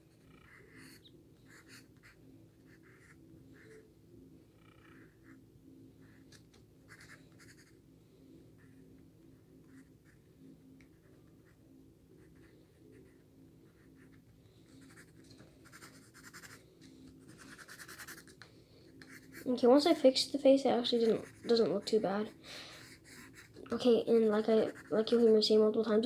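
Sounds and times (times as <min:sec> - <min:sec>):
low steady hum: 0:00.0 - 0:26.0
pencil scratching on paper: 0:00.3 - 0:03.8, 0:06.9 - 0:07.7, 0:12.2 - 0:16.6, 0:17.2 - 0:18.4, 0:19.0 - 0:20.1, 0:20.8 - 0:26.0.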